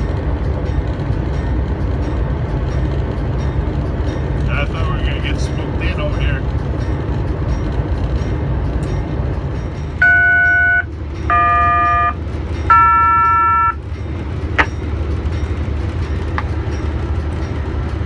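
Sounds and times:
locomotive engine rumble: 0:00.0 - 0:18.0
locomotive air horn blasts: 0:10.0 - 0:13.8.

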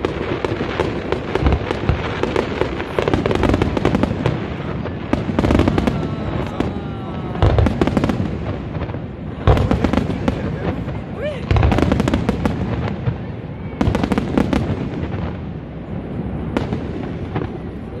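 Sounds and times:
fireworks bangs and crackles: 0:00.0 - 0:18.0
heavy firework booms: 0:00.0 - 0:18.0.

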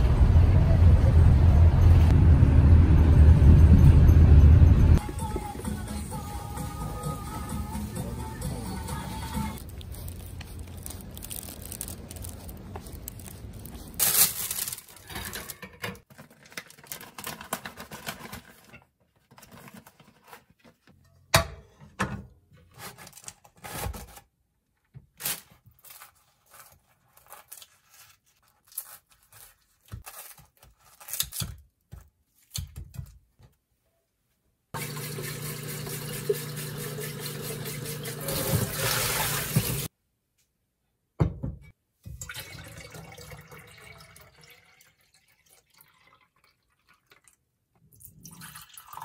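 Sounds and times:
background music: 0:04.8 - 0:09.6
plastic bags rustling: 0:09.6 - 0:18.7.

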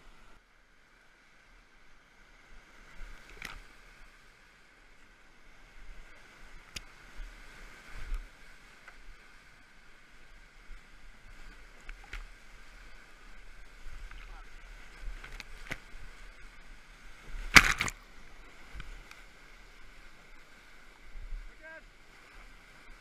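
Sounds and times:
whitewater rushing: 0:12.4 - 0:23.0
kayak knocks and splashes: 0:17.4 - 0:18.0.

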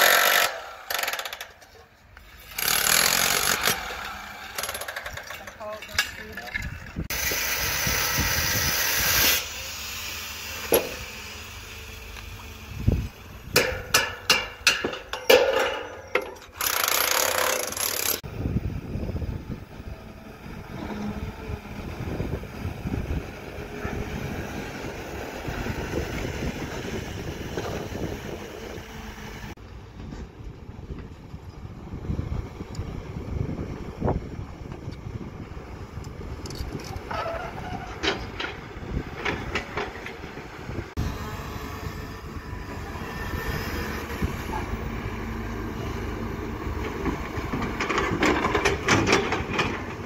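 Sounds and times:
electric demolition hammer: 0:00.0 - 0:01.7, 0:02.4 - 0:05.6, 0:07.1 - 0:14.6, 0:16.6 - 0:18.2
excavator diesel engine rumble: 0:18.2 - 0:50.0.

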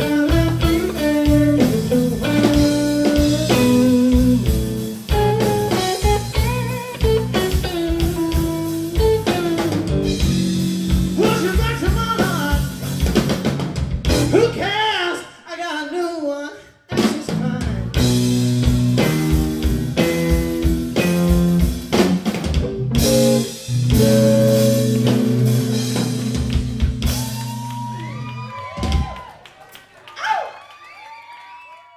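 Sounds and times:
electric guitar lead with bent notes: 0:00.0 - 0:13.1, 0:18.0 - 0:28.0
blues band playing live: 0:00.0 - 0:14.8, 0:16.9 - 0:29.2.

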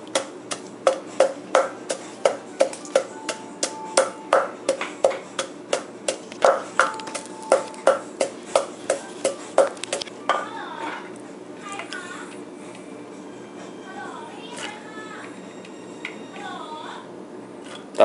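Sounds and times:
wooden pestle pounding in mortar: 0:00.0 - 0:10.4.

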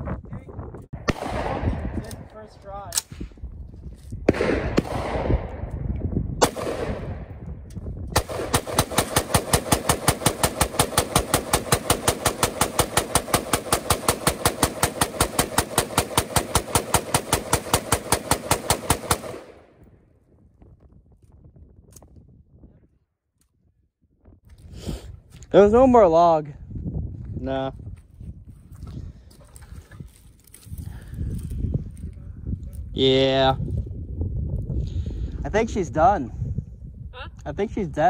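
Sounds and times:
rifle shots: 0:01.0 - 0:03.1, 0:04.2 - 0:05.7, 0:06.4 - 0:07.4, 0:08.2 - 0:19.8
rapid rifle fire: 0:04.3 - 0:05.5, 0:06.4 - 0:07.3, 0:08.2 - 0:19.7.

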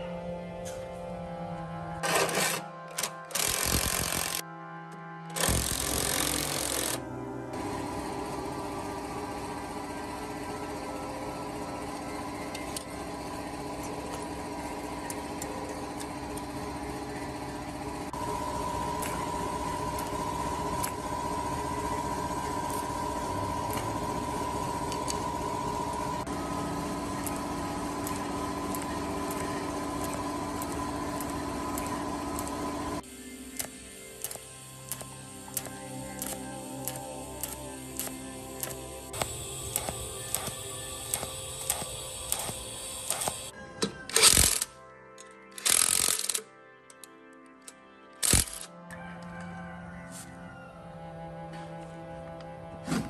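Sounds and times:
welder humming and buzzing: 0:02.0 - 0:04.4, 0:05.3 - 0:43.5, 0:48.2 - 0:48.7.

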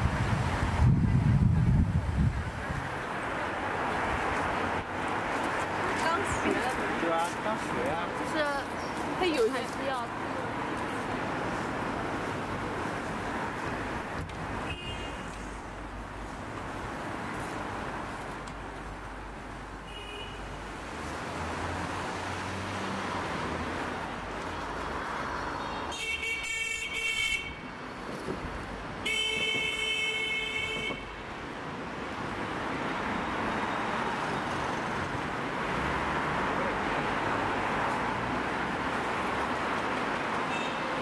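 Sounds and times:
road traffic noise: 0:00.0 - 0:41.0
vehicle horn: 0:14.7 - 0:15.3, 0:19.9 - 0:20.5, 0:25.6 - 0:27.6, 0:29.0 - 0:31.2, 0:40.5 - 0:41.0.

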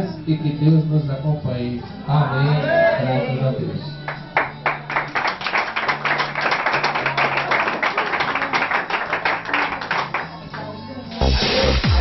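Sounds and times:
congregation clapping: 0:04.1 - 0:10.8.

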